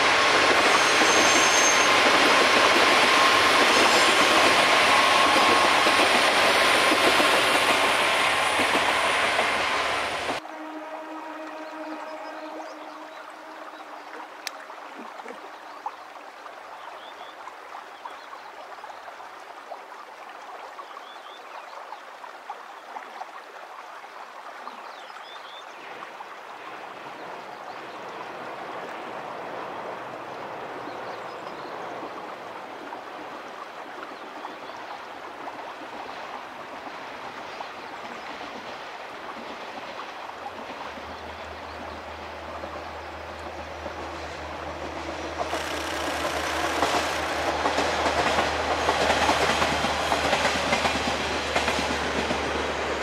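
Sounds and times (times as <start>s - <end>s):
flowing water rushing: 0.0s - 53.0s
diesel railcar engine drone: 41.2s - 53.0s.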